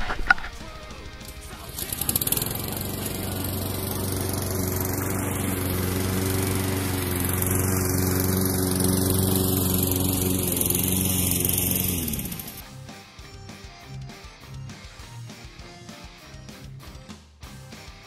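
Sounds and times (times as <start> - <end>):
petrol lawn mower cutting grass: 0.0 - 12.6.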